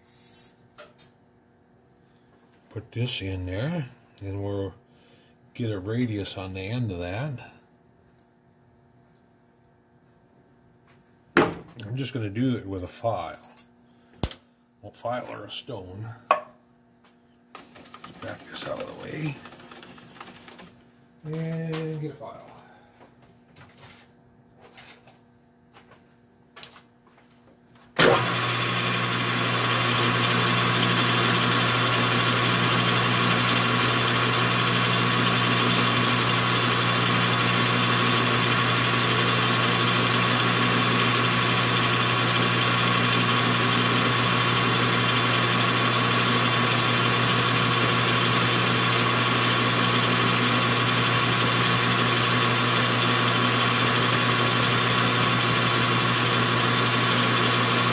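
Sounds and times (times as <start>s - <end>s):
metal lathe running: 28.0s - 57.9s
file on spinning metal: 30.3s - 57.9s.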